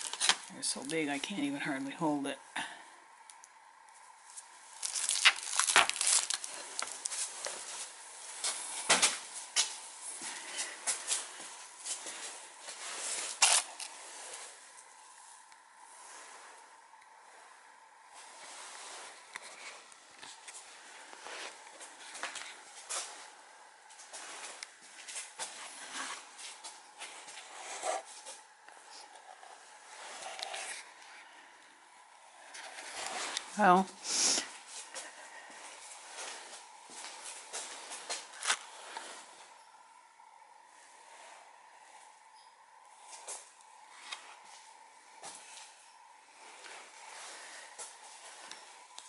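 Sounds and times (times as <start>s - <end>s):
rustling handling noise: 0.0s - 2.1s, 3.9s - 16.9s
footsteps walking: 3.9s - 15.4s, 18.1s - 28.5s, 34.5s - 39.6s, 44.1s - 45.8s.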